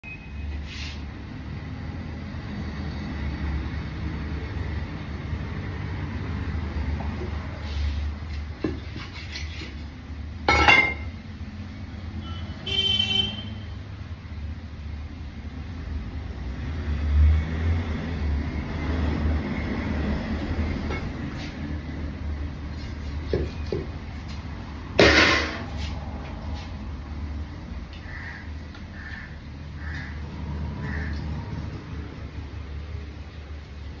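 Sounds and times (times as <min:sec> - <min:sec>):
traffic rumble: 0:00.0 - 0:34.0
vehicle horn: 0:12.2 - 0:13.8.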